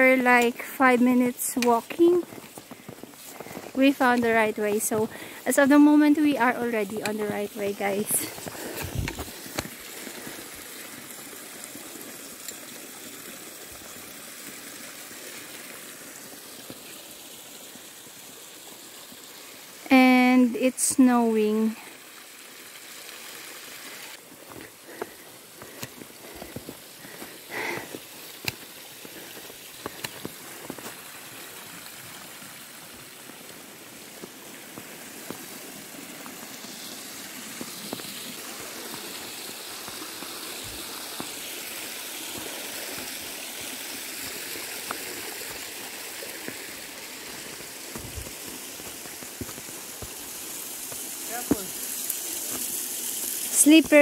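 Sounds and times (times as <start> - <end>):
stream rushing: 0.0 - 54.0
footsteps crunching in snow: 1.8 - 10.1, 24.3 - 31.2, 34.1 - 51.9.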